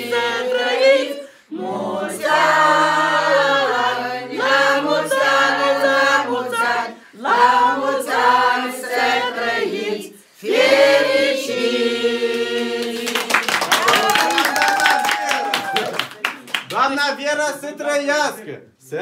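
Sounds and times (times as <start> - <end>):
group singing unaccompanied: 0.0 - 13.7.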